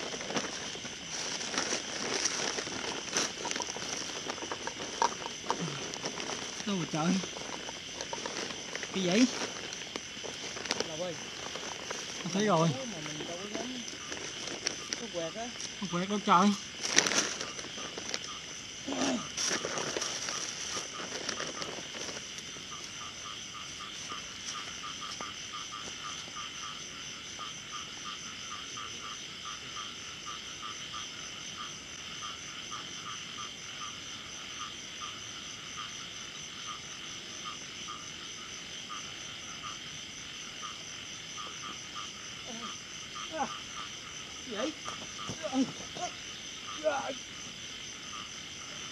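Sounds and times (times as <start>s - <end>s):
rustling noise: 0.0s - 23.0s
frogs calling in chorus: 0.0s - 48.9s.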